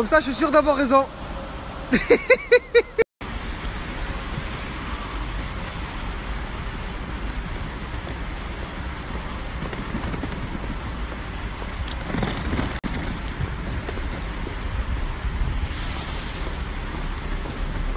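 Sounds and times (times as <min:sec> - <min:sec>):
suitcase wheels rolling on stone: 0:05.9 - 0:17.9.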